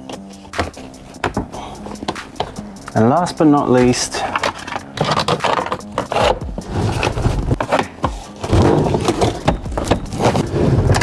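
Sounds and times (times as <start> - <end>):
light background music: 0.0 - 11.0
scraping clicks and knocks: 3.9 - 11.0.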